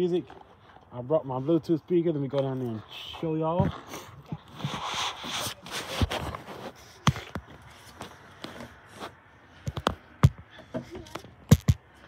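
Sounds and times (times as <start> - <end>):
phone rubbing on clothing: 4.5 - 8.0
phone handling knocks and thumps: 11.5 - 11.8.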